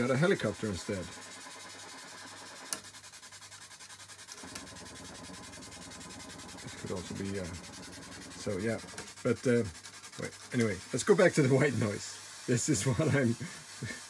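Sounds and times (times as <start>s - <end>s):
pulsing white noise hiss: 0.0s - 2.8s, 4.3s - 14.0s.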